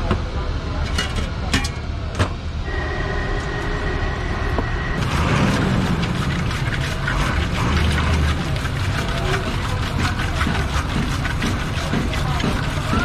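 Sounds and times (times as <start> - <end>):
street traffic rumble: 0.0 - 13.0
steady high whine: 2.4 - 6.6.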